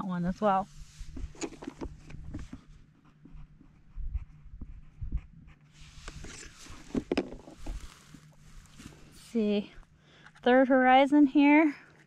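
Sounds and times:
wind rumbling on microphone: 3.9s - 7.9s.

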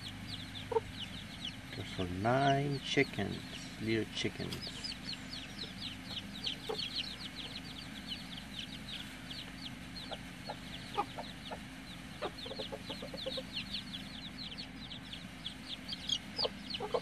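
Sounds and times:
chicks peeping: 0.0s - 17.0s
hen clucking: 0.0s - 17.0s.

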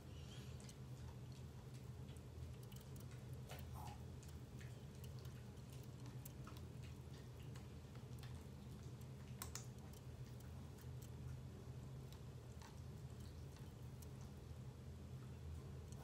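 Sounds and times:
ceiling fan humming: 0.0s - 16.0s
faint clicks: 0.5s - 11.4s.

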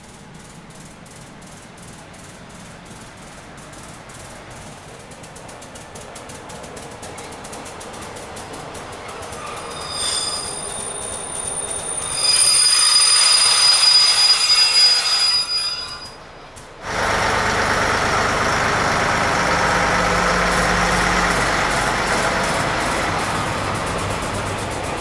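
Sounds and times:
train rumble with low hum: 0.0s - 25.0s
train wheels squealing: 6.8s - 16.6s.

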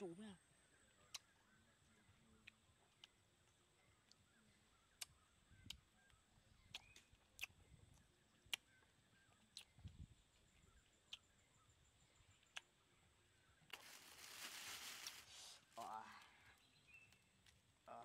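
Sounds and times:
faint sharp clicks: 8.5s - 8.7s
plastic bag rustling: 13.7s - 15.8s.

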